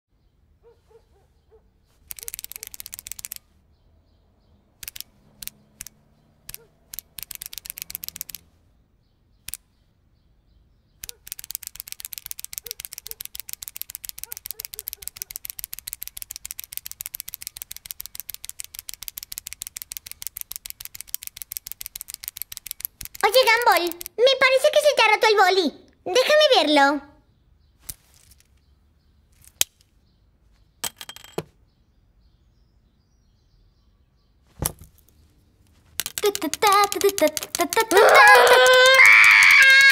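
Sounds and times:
ballpoint pen clicking: 0:02.0 - 0:03.4, 0:04.8 - 0:08.5, 0:11.0 - 0:24.2, 0:36.0 - 0:39.9.

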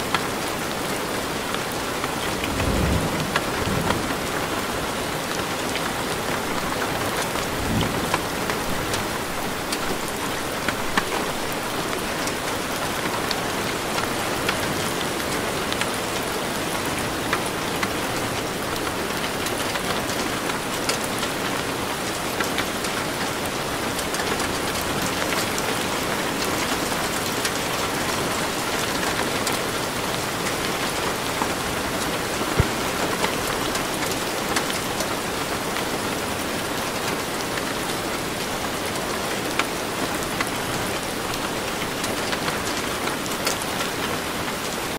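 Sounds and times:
steady rain falling: 0:00.0 - 0:44.9
raindrop taps: 0:32.0 - 0:34.7.

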